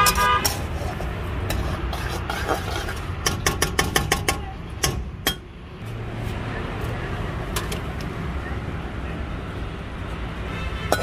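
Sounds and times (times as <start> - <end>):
metal spatula scraping a wok: 0.0 - 3.6.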